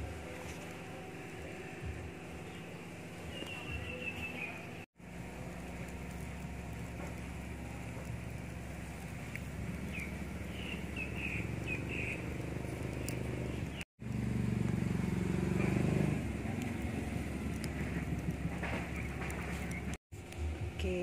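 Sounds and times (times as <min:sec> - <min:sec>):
low engine hum: 0:00.0 - 0:21.0
bird chirps: 0:03.3 - 0:04.7, 0:09.8 - 0:13.8.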